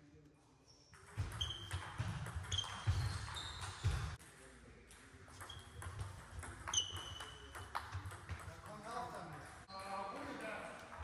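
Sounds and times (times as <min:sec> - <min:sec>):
shoes squeaking on floor: 0:00.7 - 0:04.2, 0:05.4 - 0:06.1, 0:06.7 - 0:07.6.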